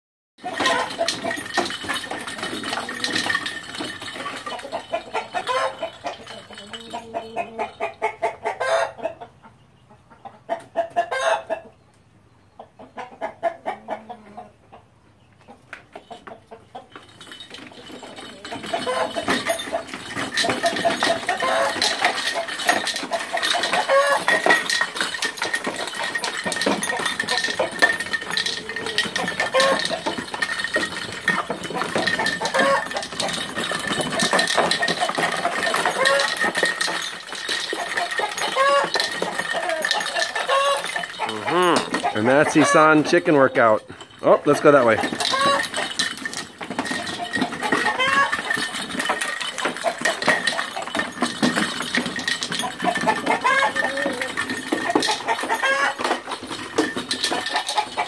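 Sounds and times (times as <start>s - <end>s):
rooster clucking: 0.4s - 1.4s, 4.2s - 11.8s, 12.5s - 16.9s, 18.3s - 30.4s, 31.3s - 33.4s, 34.1s - 36.4s, 37.8s - 45.9s, 46.9s - 48.6s, 52.6s - 56.3s, 57.3s - 58.0s
exercise wheel rattling and clicking: 0.4s - 8.8s, 15.9s - 58.0s.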